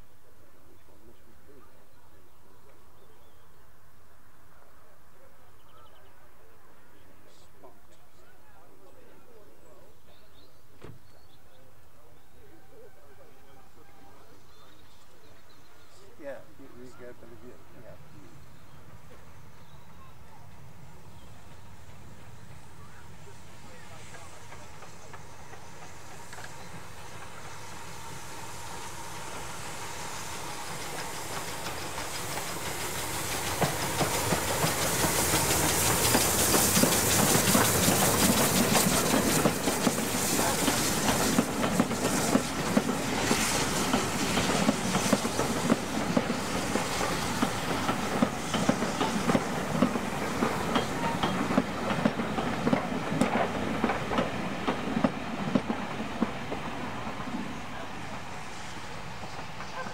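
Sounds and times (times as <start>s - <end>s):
steam locomotive hiss: 6.2s - 59.9s
coach wheels clickety-clack: 12.4s - 59.9s.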